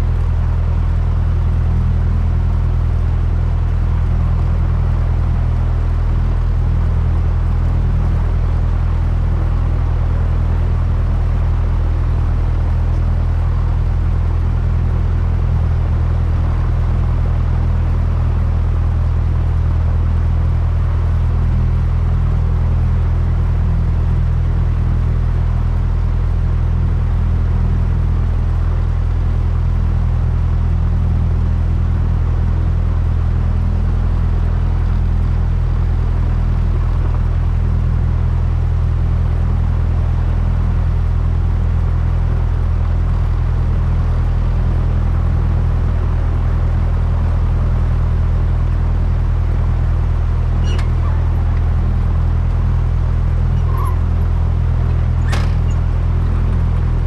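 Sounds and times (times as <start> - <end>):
small plane engine droning: 0.0 - 57.0.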